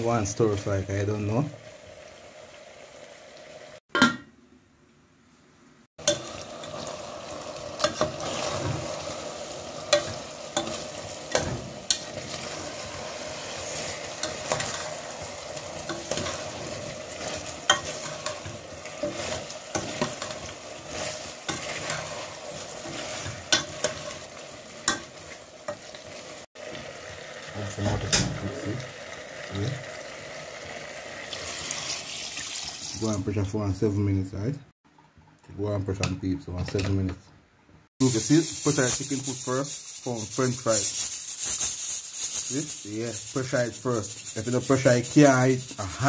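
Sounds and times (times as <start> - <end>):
chicken feet sizzling in a pot: 0.0 - 3.8, 5.9 - 33.7, 38.0 - 46.0
metal spoon scraping a pot: 15.8 - 24.2.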